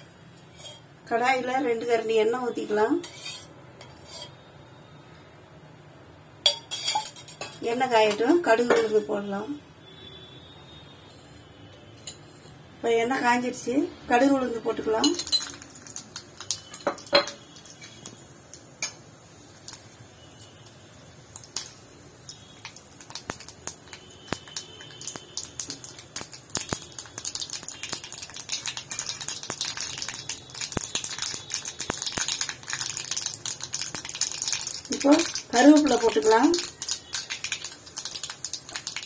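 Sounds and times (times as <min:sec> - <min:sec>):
seeds crackling in hot oil: 0:13.1 - 0:39.0.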